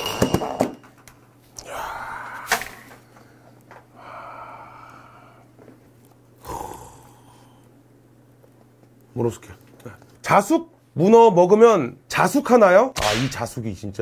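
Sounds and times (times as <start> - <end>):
long breath: 1.6 - 5.5.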